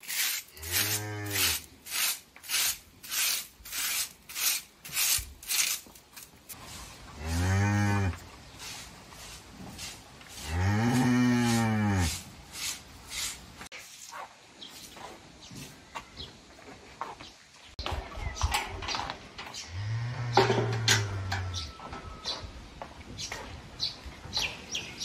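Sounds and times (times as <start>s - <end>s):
broom sweeping floor: 0.0s - 15.8s
cow mooing: 7.2s - 8.2s.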